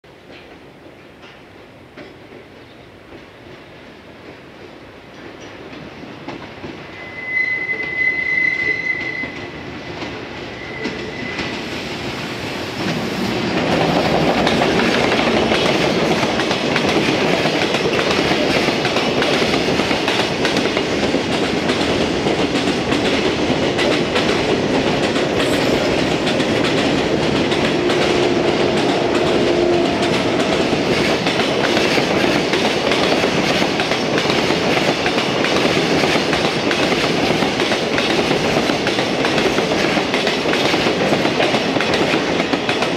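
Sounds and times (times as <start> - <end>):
trains passing with wheel rumble: 0.1 - 42.9
train whistle blasts: 6.9 - 11.6, 27.8 - 30.7
wheels clacking over rail joints: 12.8 - 42.9.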